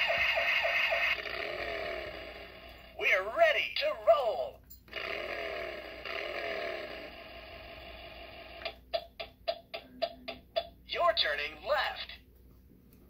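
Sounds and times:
toy speaker buzzing tone: 0:00.0 - 0:03.2, 0:04.9 - 0:08.8.

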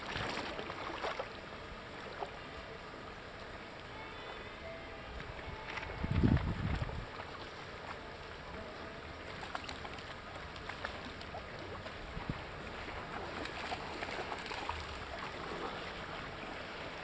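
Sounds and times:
small waves lapping: 0:00.0 - 0:17.0
wind on microphone: 0:05.2 - 0:07.2, 0:12.0 - 0:13.3.

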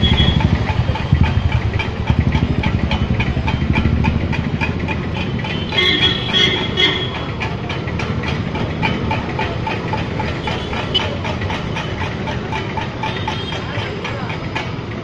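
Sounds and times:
fast regular ticking: 0:00.0 - 0:15.0.

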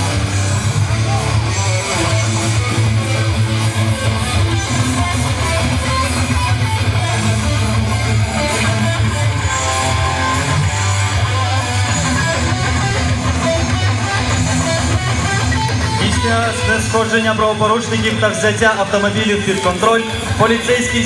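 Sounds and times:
guitar: 0:00.0 - 0:21.0
steady bass line: 0:00.0 - 0:21.0.

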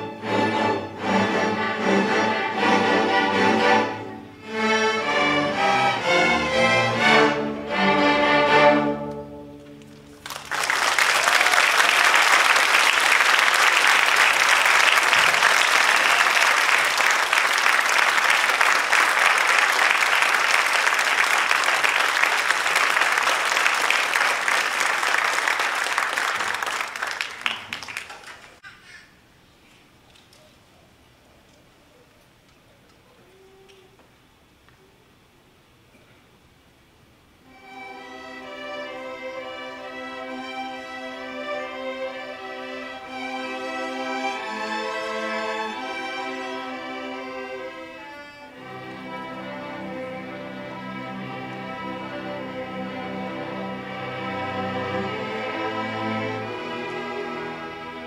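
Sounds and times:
string orchestra playing: 0:00.0 - 0:10.5, 0:37.4 - 0:58.0
audience applauding: 0:09.8 - 0:28.6.

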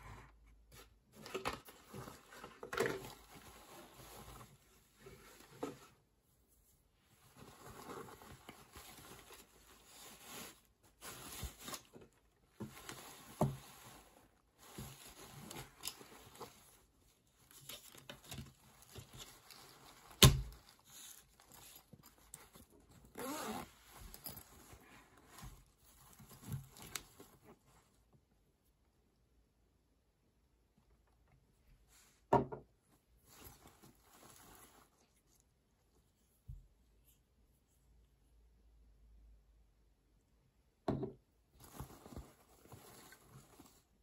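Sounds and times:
fabric pouch rustling: 0:01.1 - 0:06.0, 0:07.1 - 0:27.7, 0:33.2 - 0:35.4, 0:41.6 - 0:44.0
zip opening with a rasp: 0:23.1 - 0:23.8.

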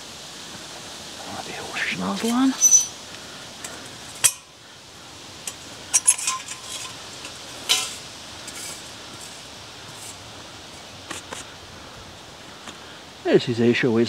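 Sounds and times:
metal parts clinking: 0:05.4 - 0:09.4
metallic ring: 0:05.9 - 0:08.8.

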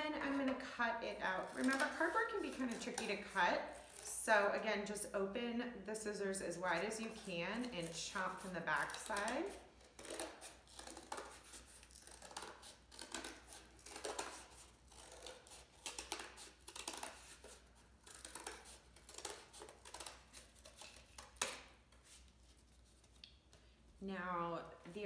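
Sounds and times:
scissors cutting cardboard: 0:01.2 - 0:04.2, 0:06.6 - 0:23.2.

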